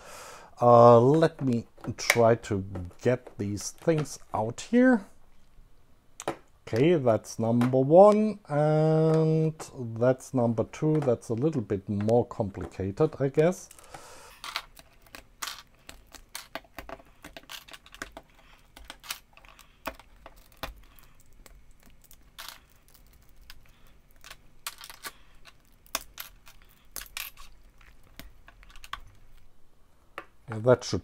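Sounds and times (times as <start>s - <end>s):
plastic parts clicking and knocking: 10.8s - 29.5s.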